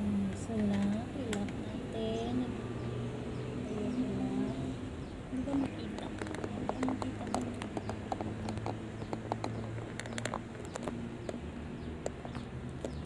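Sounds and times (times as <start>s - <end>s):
parts clicking and tapping: 5.5s - 13.0s.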